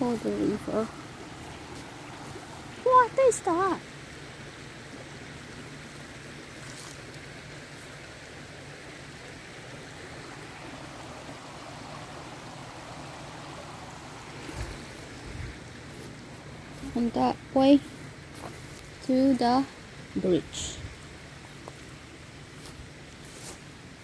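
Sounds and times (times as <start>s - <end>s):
river flowing over rocks: 0.0s - 16.8s.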